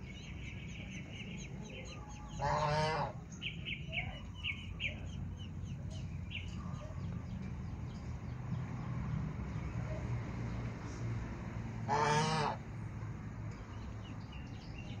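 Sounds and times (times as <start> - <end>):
goose honk: 2.4 - 3.2, 11.9 - 12.6.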